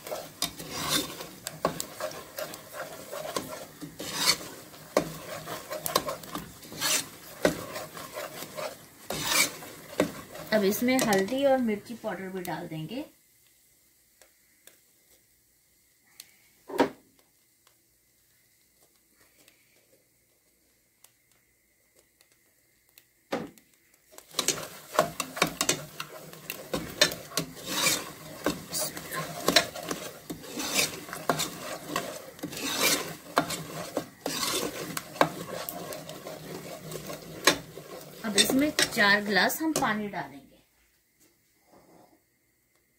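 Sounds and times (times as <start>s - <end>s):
ladle scraping metal pot: 0.0s - 11.4s, 24.2s - 40.1s.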